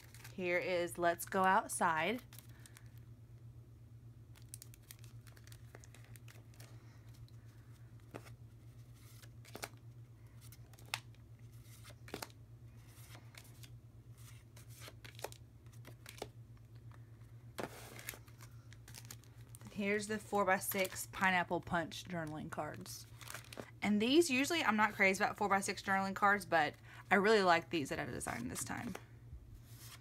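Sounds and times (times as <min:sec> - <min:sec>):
low steady hum: 0:00.0 - 0:30.0
rustling of card stock: 0:04.3 - 0:23.8, 0:29.6 - 0:30.0.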